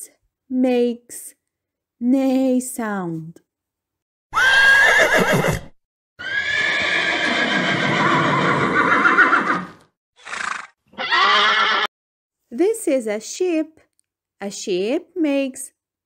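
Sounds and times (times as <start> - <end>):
horse whinnying: 4.3 - 11.9.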